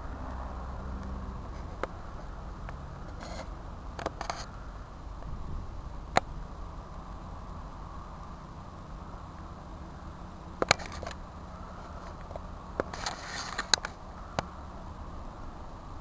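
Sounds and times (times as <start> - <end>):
low steady rumble: 0.0 - 16.0
camera handling clicks and rustles: 10.6 - 11.2, 12.0 - 14.0.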